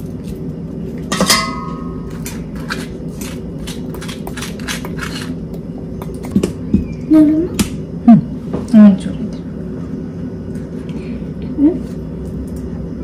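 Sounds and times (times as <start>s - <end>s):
steady low hum: 0.0s - 13.0s
metal spoons scraping avocado: 2.1s - 5.4s.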